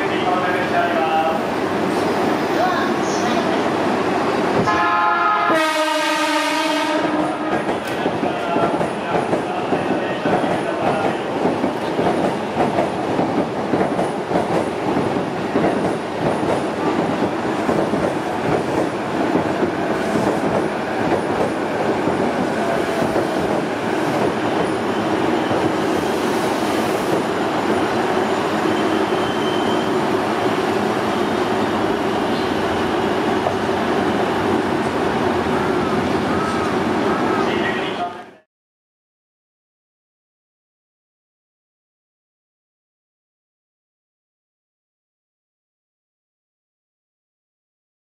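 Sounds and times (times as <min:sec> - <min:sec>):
train hum: 0:00.0 - 0:38.4
train rattle and rumble: 0:06.8 - 0:38.2.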